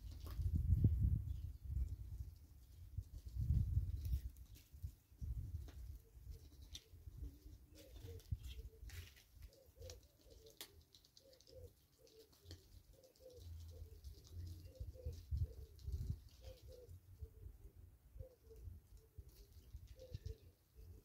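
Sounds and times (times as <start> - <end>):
doves cooing: 5.9 - 21.0
geese pecking grain: 7.6 - 16.9.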